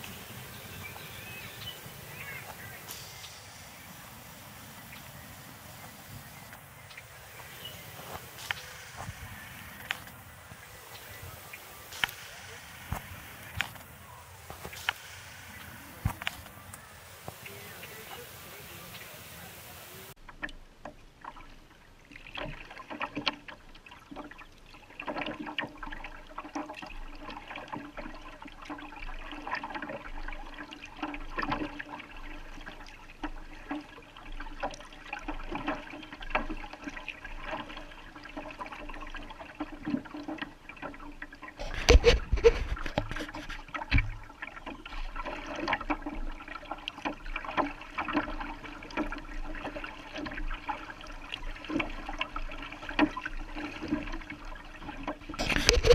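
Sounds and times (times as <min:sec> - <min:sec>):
water dripping from paddle: 0:00.0 - 0:55.9
water splashing along kayak hull: 0:00.0 - 0:55.9.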